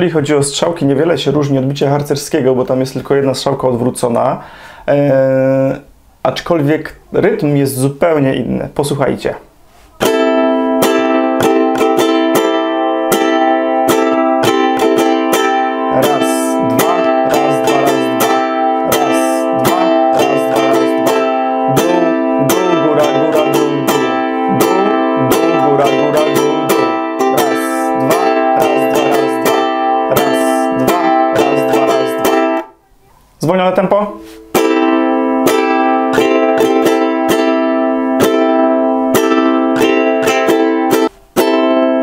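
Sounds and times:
ukulele strumming: 9.9s - 32.7s, 34.0s - 42.0s.

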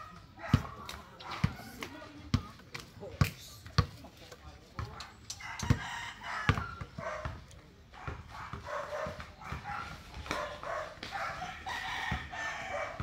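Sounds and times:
basketball bouncing on concrete: 0.5s - 4.0s, 6.5s - 11.3s.

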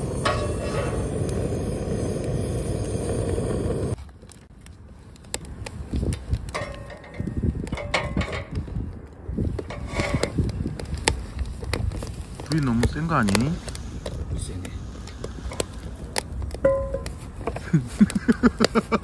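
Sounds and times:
gas torch blasting: 0.0s - 4.0s, 9.5s - 17.3s
flame surges: 0.0s - 7.8s, 8.4s - 19.0s
wood fire crackling and popping: 0.0s - 19.0s.

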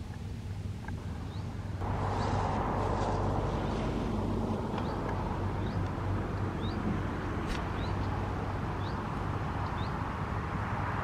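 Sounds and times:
low rumble with hum: 0.0s - 9.9s
small bird chirping: 4.7s - 6.9s, 7.6s - 10.0s.

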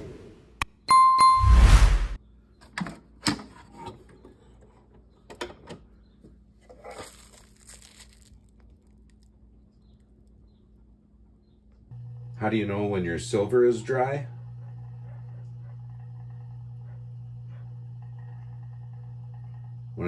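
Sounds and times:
plastic bag rustling: 6.7s - 9.3s.

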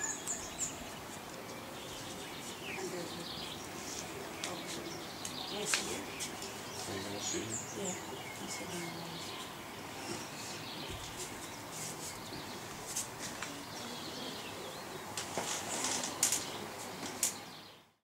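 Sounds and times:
birds chirping: 0.0s - 18.0s
soft rustles: 8.3s - 14.4s, 15.2s - 17.4s.

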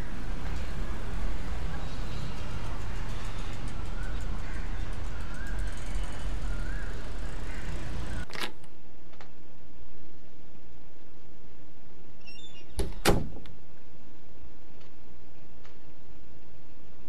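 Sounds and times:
low traffic rumble: 0.0s - 12.1s.

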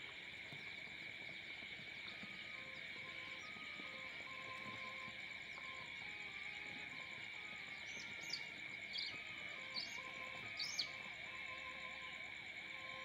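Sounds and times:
chicks peeping in chorus: 0.4s - 12.0s.

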